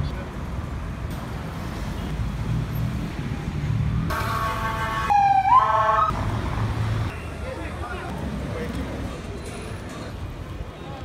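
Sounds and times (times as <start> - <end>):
street traffic rumbling: 0.0 - 11.0
siren call: 4.1 - 6.2.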